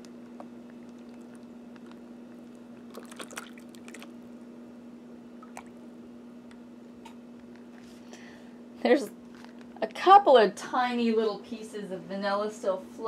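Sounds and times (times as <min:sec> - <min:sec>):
thick liquid pouring: 0:00.6 - 0:04.3.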